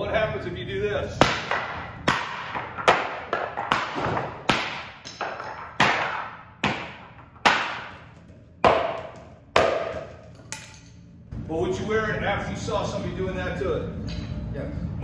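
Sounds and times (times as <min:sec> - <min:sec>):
hammer striking plastic plate: 0:01.2 - 0:10.2.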